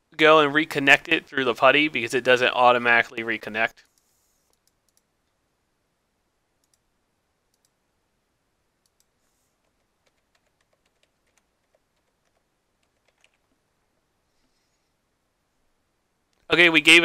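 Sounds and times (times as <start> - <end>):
computer mouse clicks: 3.8 - 5.1, 6.6 - 6.9, 7.5 - 7.8, 8.8 - 13.5
keyboard keystrokes: 9.7 - 13.4.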